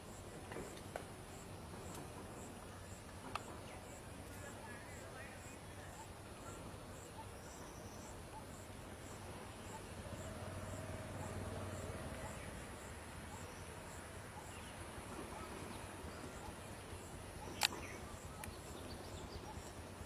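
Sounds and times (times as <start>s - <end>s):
insect chirp: 0.0s - 20.0s
insect trill: 1.3s - 15.0s.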